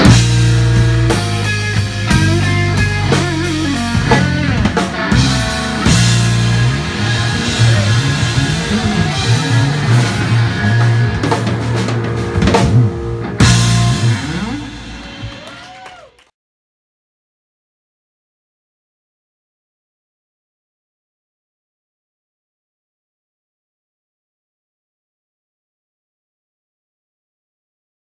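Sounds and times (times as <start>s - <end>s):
electric guitar bending notes: 0.0s - 15.6s
blues-rock band playing: 0.0s - 16.2s.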